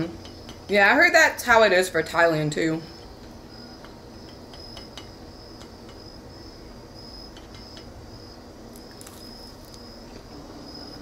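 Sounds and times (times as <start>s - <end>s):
crickets chirping: 0.2s - 11.0s.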